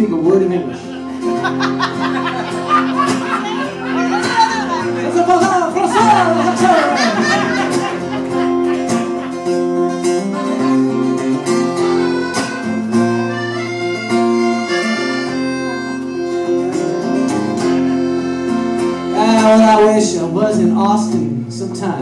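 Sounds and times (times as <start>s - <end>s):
acoustic guitar: 0.0s - 22.0s
resonator guitar slide melody: 0.0s - 22.0s.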